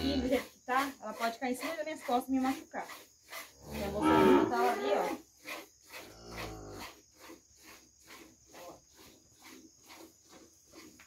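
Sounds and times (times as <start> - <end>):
insects chirping: 0.0 - 11.0
cattle lowing: 2.9 - 11.0.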